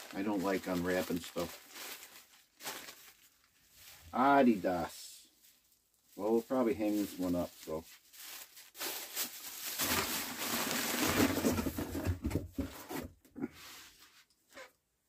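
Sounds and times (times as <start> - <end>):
jacket fabric rustling and crackling: 0.0 - 4.7, 5.3 - 11.8.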